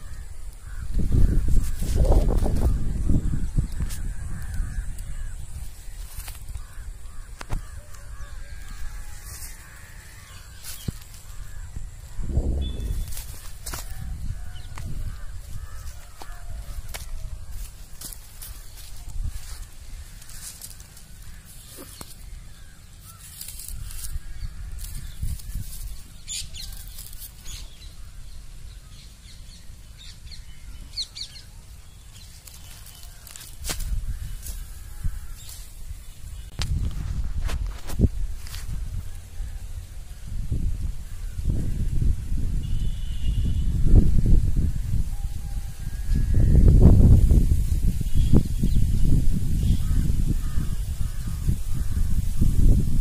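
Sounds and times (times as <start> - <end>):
crows cawing: 0.0 - 29.1, 32.4 - 36.2, 49.4 - 53.0
faint birds calling: 0.0 - 53.0
wind rumbling on microphone: 0.0 - 53.0
high bird chirps: 6.9 - 17.6.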